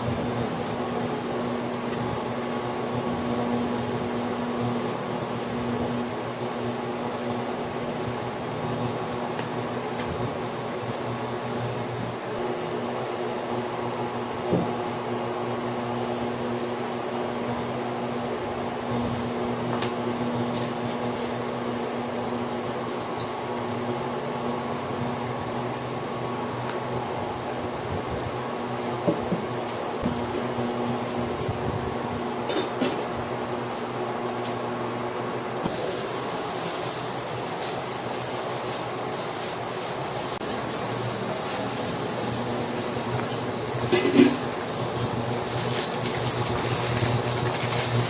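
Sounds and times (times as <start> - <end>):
fan humming: 0.0 - 48.0.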